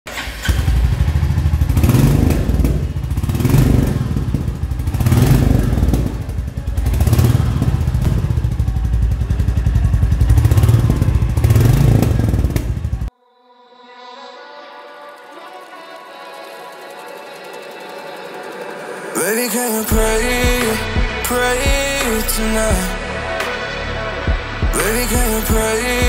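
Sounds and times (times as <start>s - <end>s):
motorcycle engine thumping: 0.5s - 13.1s.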